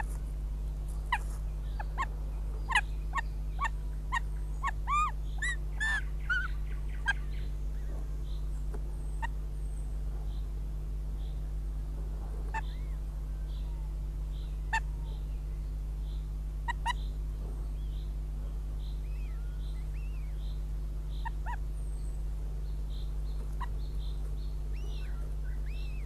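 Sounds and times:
steady low electrical hum: 0.0 - 26.0
hawks calling: 1.1 - 9.8, 12.5 - 15.3, 16.6 - 17.2, 18.8 - 22.2, 22.9 - 26.0.

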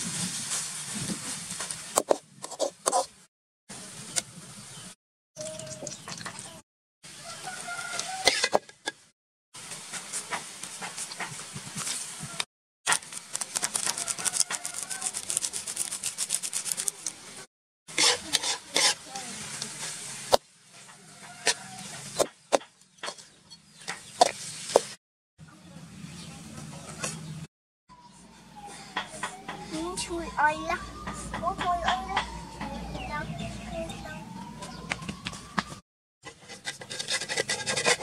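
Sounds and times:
metal spoon scraping a wok: 7.9 - 9.0, 17.9 - 20.1, 36.2 - 38.0.

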